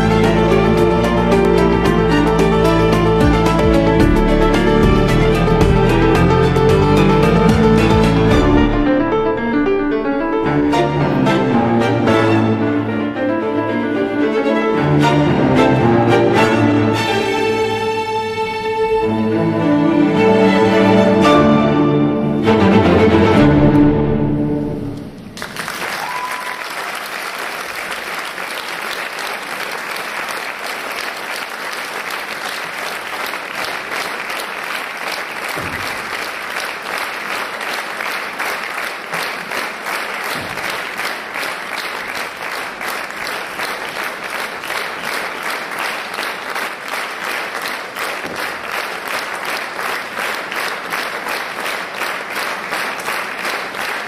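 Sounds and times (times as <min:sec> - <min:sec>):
audience applauding: 0:00.0 - 0:08.8, 0:25.0 - 0:54.0
music: 0:00.0 - 0:25.5.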